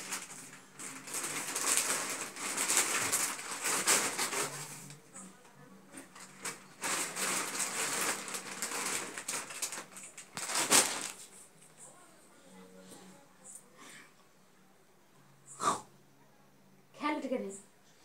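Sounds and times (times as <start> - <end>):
plastic wrapping crinkling: 0.0 - 5.1, 6.0 - 11.6.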